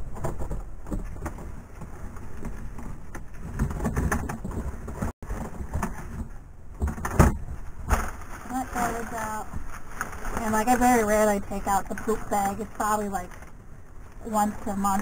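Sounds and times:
plastic bags rustling: 7.4 - 15.0.

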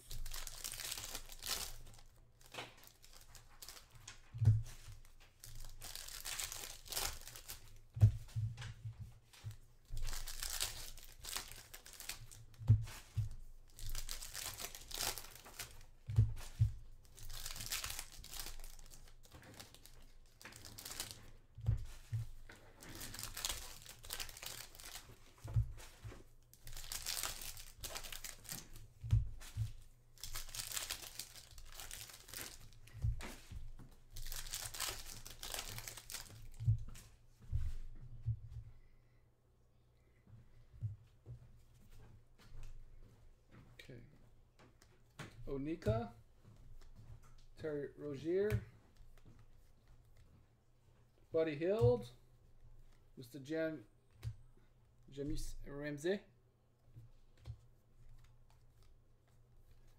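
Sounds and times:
foil wrappers crinkling: 0.0 - 4.3, 4.9 - 7.9, 9.9 - 21.5, 22.2 - 36.7.

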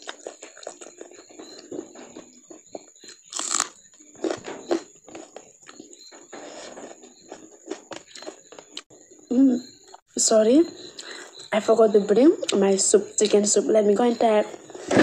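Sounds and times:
chewing and mouth smacks: 0.0 - 6.0.

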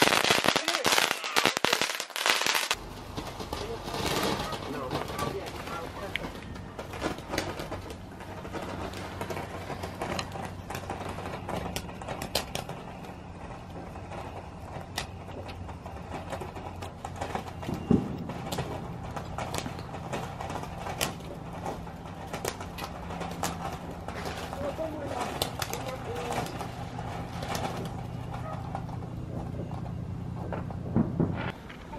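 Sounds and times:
firework spraying and crackling: 0.0 - 31.9.

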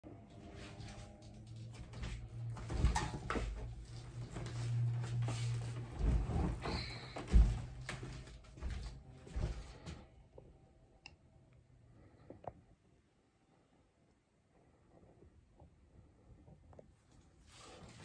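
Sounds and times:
steady low hum: 0.0 - 18.0
knocks and bumps: 5.8 - 9.6.

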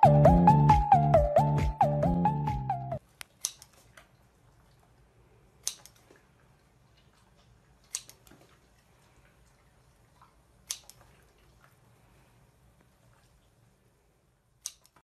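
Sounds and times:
scissors snipping: 3.2 - 3.8, 5.6 - 6.0, 14.6 - 15.0.

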